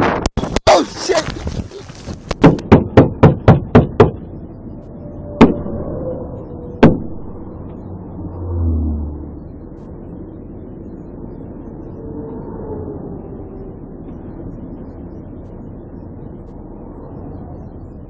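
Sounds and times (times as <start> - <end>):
highway traffic noise: 0.3 - 18.0.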